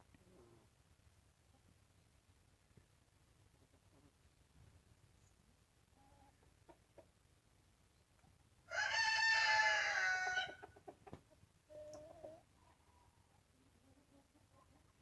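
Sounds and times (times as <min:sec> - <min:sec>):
faint chicken clucks: 0:00.1 - 0:00.8, 0:03.4 - 0:04.4, 0:05.2 - 0:15.0
rooster crowing: 0:08.7 - 0:10.6.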